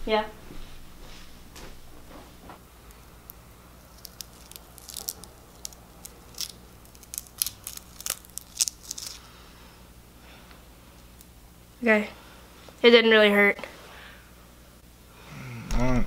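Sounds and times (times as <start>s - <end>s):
pore strip peeling off skin: 3.3s - 9.3s.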